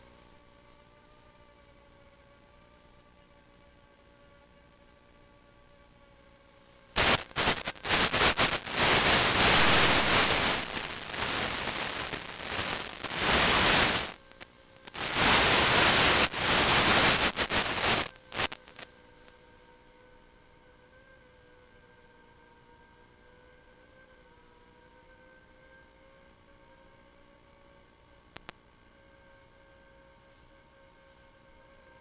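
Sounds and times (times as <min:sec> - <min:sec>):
loud radio static hiss: 0:07.0 - 0:18.9.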